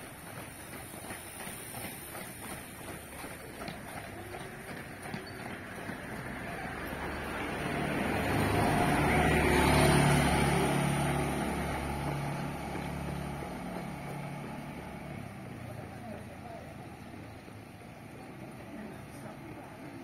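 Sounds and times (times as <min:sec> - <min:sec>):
motor scooter driving past: 0:04.6 - 0:15.7
car driving past: 0:04.8 - 0:16.2.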